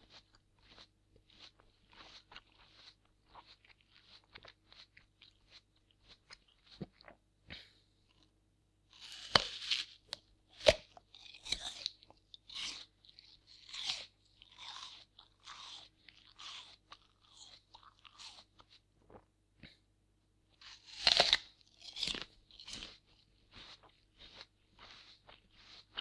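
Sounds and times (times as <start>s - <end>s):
crunching chews: 0.0s - 8.3s, 8.9s - 19.8s, 20.6s - 26.0s
apple bites: 8.9s - 12.9s, 20.6s - 23.0s.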